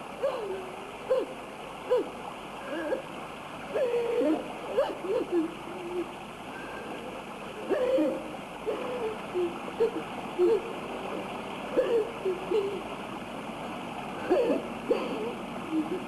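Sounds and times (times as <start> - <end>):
soundtrack hiss: 0.0 - 16.0
woman sobbing: 0.2 - 3.0, 3.7 - 6.1, 7.6 - 10.7, 11.8 - 12.8, 14.2 - 16.0.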